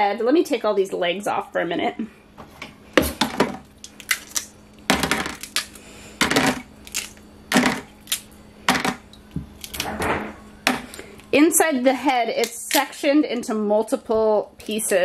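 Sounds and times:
crab shell cracking: 3.8s - 9.9s.

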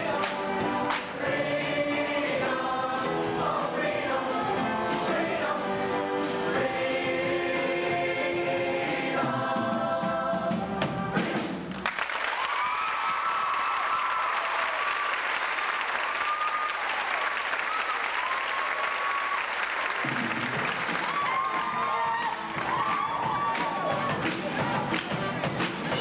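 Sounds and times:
choir singing: 0.0s - 11.4s
audience applause: 11.7s - 25.3s
cheers and whoops: 12.3s - 19.8s, 20.9s - 24.1s.

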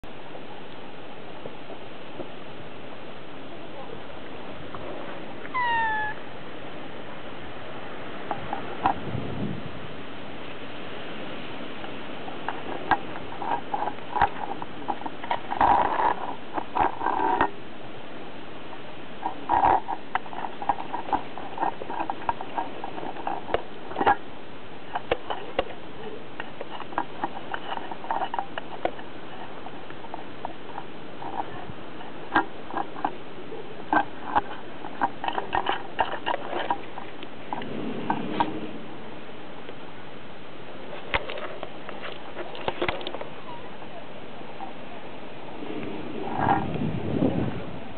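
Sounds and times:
steady background hiss: 0.0s - 47.9s.

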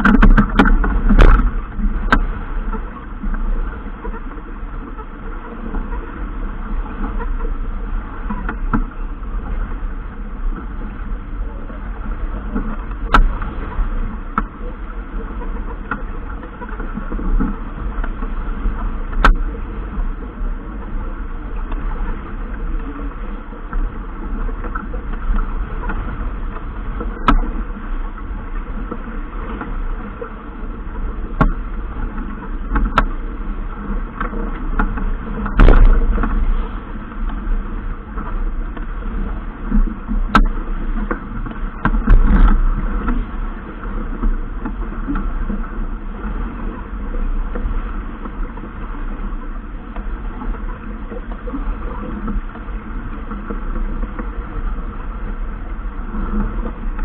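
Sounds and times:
boat rushing through water: 0.0s - 57.0s
wind on microphone: 0.0s - 57.0s
sharp knocks: 35.5s - 36.4s.

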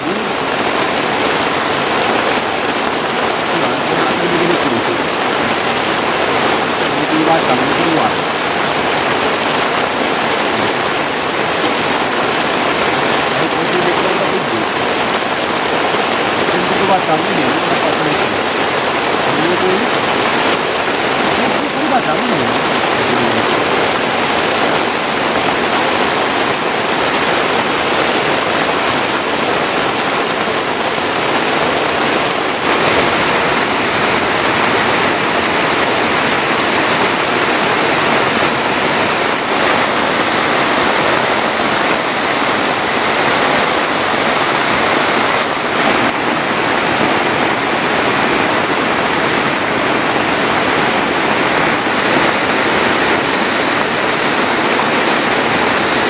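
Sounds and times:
heavy rain pouring: 0.0s - 56.0s
water dripping and streaming: 0.0s - 56.0s.

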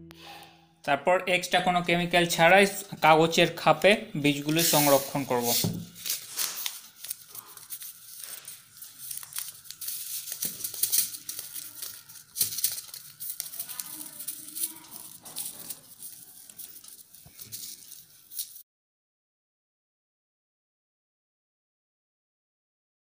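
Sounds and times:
paper envelope rustling: 3.8s - 18.6s.

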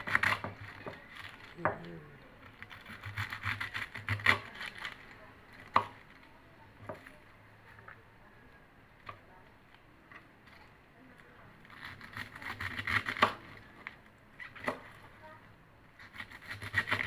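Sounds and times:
knife slicing cabbage: 0.0s - 1.8s, 2.4s - 5.0s, 11.7s - 13.6s, 14.4s - 15.0s, 16.0s - 17.0s.

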